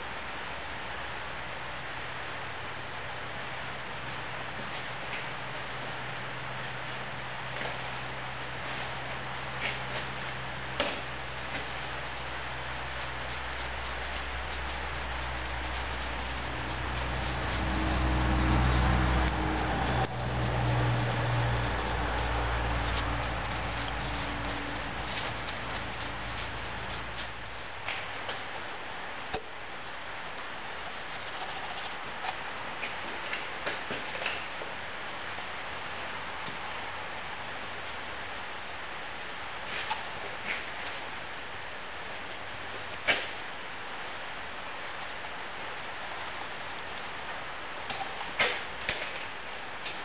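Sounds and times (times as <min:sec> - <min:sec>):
sand hissing through a sieve: 0:03.4 - 0:33.6.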